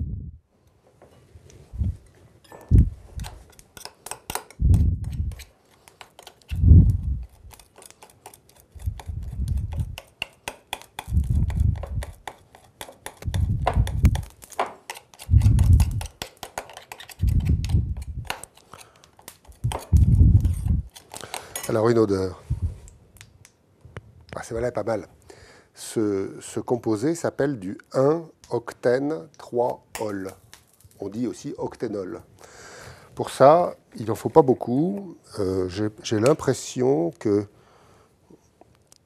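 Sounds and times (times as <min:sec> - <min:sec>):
spoon clinking and scraping glass bowl: 0:07.2 - 0:17.4, 0:18.0 - 0:21.8.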